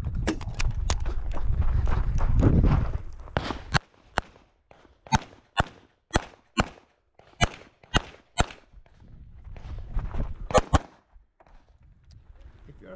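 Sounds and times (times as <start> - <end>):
pistol shots: 5.1 - 8.7, 10.5 - 11.0.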